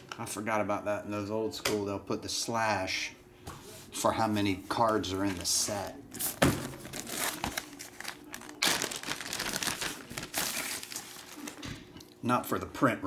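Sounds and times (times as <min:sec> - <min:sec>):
plastic sheeting crinkling: 0:04.8 - 0:11.8.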